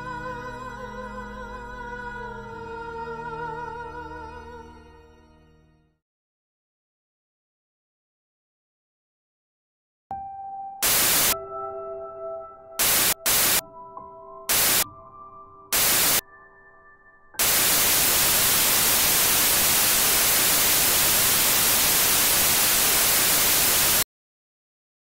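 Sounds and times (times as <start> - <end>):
static hiss: 10.8 - 11.4, 12.8 - 13.6, 14.5 - 14.8, 15.8 - 16.2, 17.4 - 24.0.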